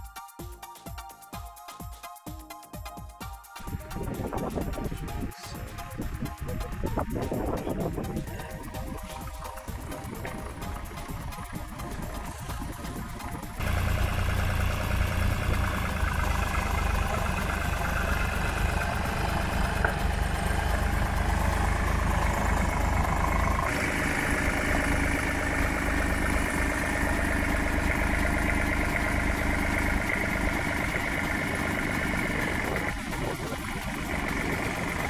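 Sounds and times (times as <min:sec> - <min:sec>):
tractor engine running: 0:03.6 - 0:35.0.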